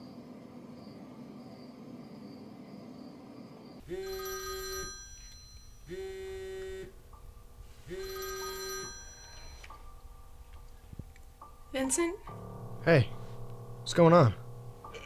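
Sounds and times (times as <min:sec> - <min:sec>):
electronic phone ringing: 0:03.8 - 0:07.0, 0:07.8 - 0:09.9.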